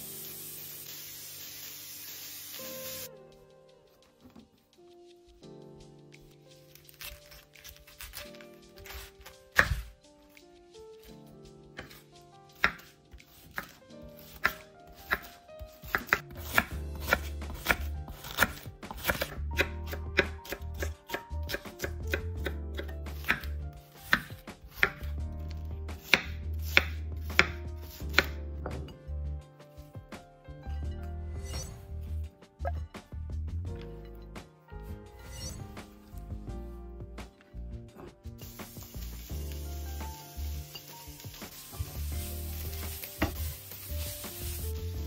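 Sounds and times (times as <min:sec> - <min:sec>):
knife chopping on cutting board: 0:06.8 - 0:09.9, 0:11.8 - 0:29.0.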